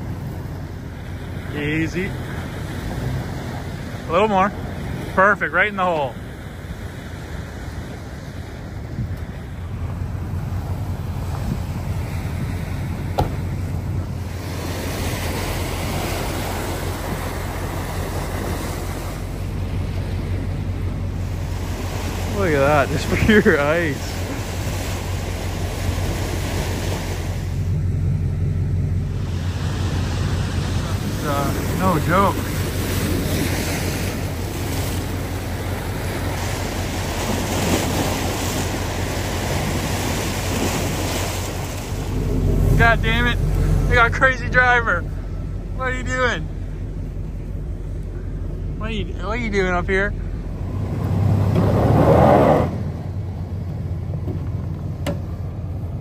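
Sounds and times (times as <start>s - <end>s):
truck engine idling: 0.0s - 52.0s, 52.7s - 56.0s
vehicle driving on rough trail: 0.0s - 56.0s
wind noise on microphone: 7.4s - 20.6s.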